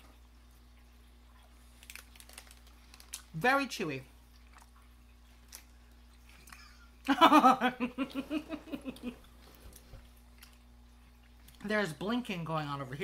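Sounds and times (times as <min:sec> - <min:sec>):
woman laughing: 0:06.6 - 0:09.2.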